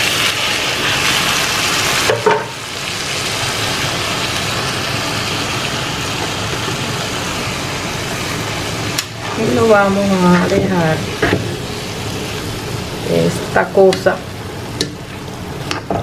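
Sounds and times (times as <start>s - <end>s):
broth sizzling in frying pan: 0.0s - 16.0s.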